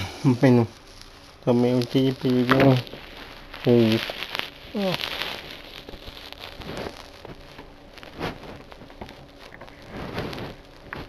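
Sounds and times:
clothing rustling against phone: 0:00.6 - 0:11.0.

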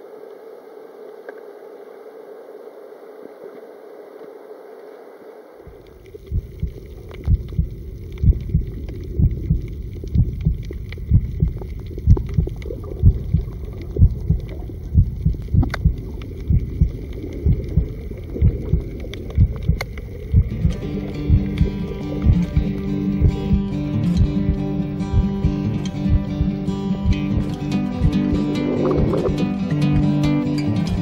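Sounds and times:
faint steady hum: 0:00.0 - 0:31.0
background music with low thump: 0:19.4 - 0:30.2.

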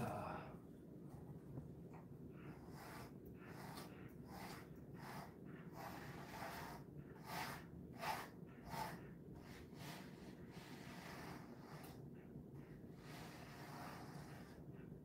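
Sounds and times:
steady low hum: 0:00.0 - 0:15.0
brush strokes through dog fur: 0:02.3 - 0:12.0, 0:12.8 - 0:14.8.

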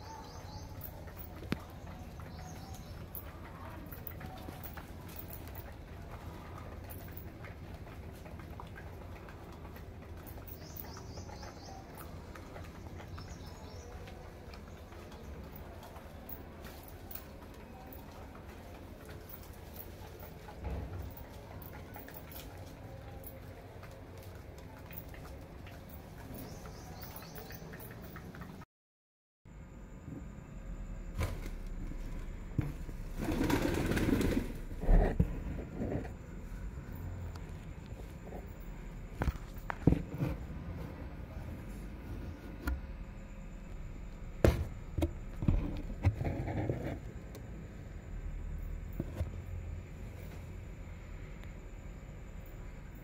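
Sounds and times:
bird chirping: 0:00.0 - 0:04.6, 0:10.3 - 0:15.8, 0:26.2 - 0:28.3
beaks tapping on concrete: 0:00.0 - 0:28.6
low steady rumble: 0:29.5 - 0:53.0.

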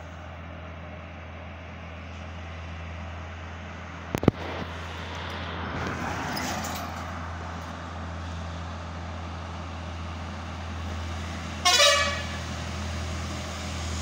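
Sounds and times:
road noise: 0:00.0 - 0:14.0
truck engine drone: 0:00.0 - 0:14.0.

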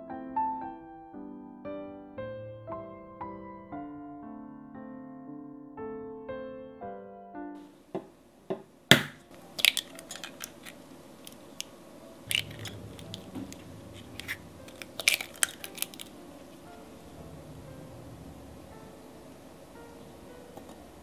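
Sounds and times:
egg shell cracking: 0:08.9 - 0:16.2.

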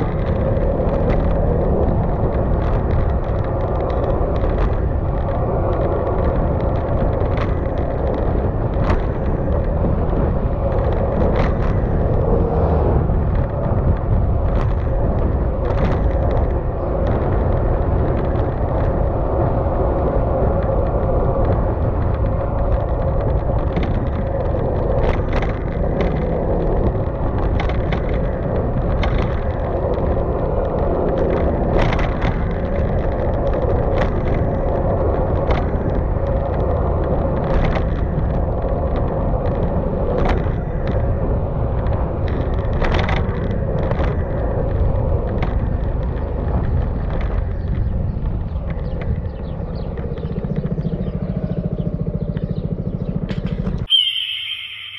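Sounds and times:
tyre and road noise: 0:00.0 - 0:54.9
scooter engine running: 0:46.0 - 0:53.9.

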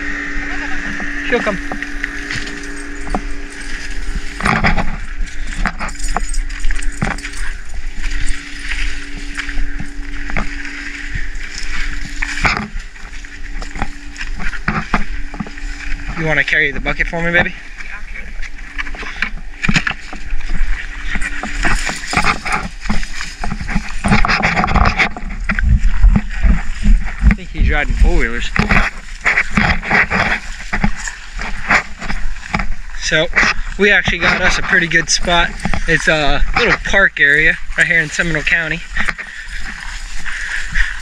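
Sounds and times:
footsteps on dry leaves and twigs: 0:00.0 - 0:41.0
steady low rumble: 0:00.0 - 0:41.0.

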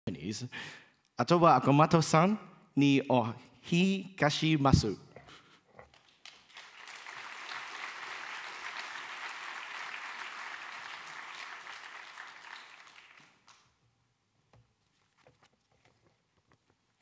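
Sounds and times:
audience applauding: 0:05.9 - 0:13.7.

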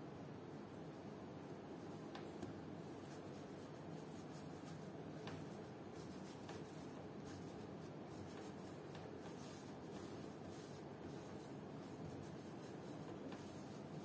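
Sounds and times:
steady low hum: 0:00.0 - 0:14.0
hand brushing pastry board: 0:01.9 - 0:14.0.

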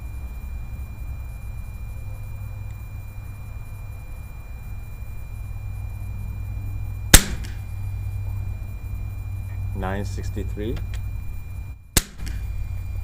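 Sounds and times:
air rifle shot: 0:07.1 - 0:07.7, 0:12.0 - 0:12.6.

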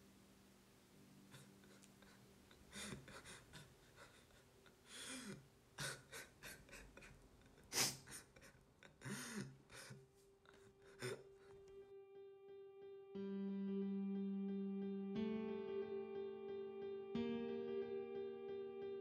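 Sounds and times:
person gasping and panting: 0:07.7 - 0:11.6.

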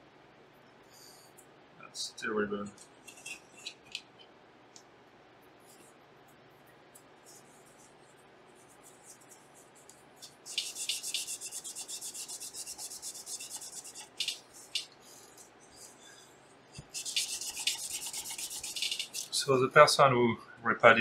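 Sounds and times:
paper towel rubbing metal: 0:07.3 - 0:14.9, 0:16.8 - 0:19.5.

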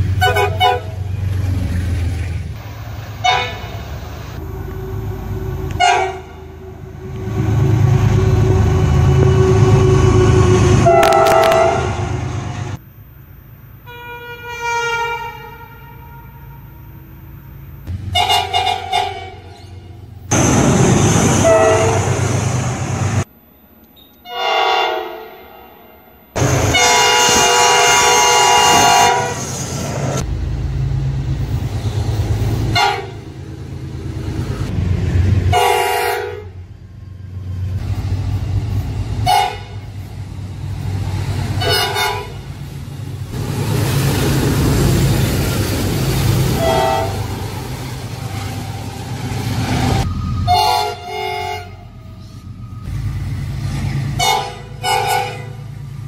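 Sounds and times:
rumble of passing train: 0:00.0 - 0:56.0
locomotive horn blasts: 0:00.2 - 0:01.1, 0:03.2 - 0:03.7, 0:04.4 - 0:12.2, 0:13.9 - 0:16.8, 0:18.1 - 0:20.0, 0:21.4 - 0:22.2, 0:24.2 - 0:25.4, 0:26.4 - 0:29.5, 0:32.7 - 0:33.2, 0:35.5 - 0:36.6, 0:39.2 - 0:39.9, 0:41.6 - 0:42.5, 0:46.5 - 0:47.3, 0:50.4 - 0:52.2, 0:54.1 - 0:55.7.

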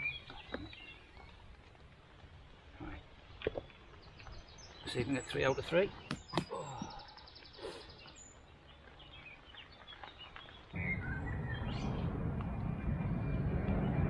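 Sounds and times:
steady rushing noise: 0:10.8 - 0:14.0.

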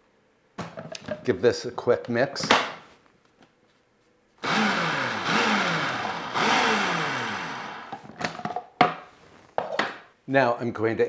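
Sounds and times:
food processor motor whirring: 0:04.4 - 0:08.0.

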